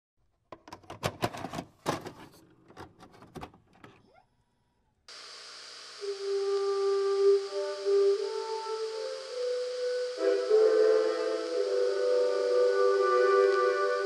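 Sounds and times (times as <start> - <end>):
videotape hiss: 5.1 - 14.0
held musical tone: 6.0 - 14.0.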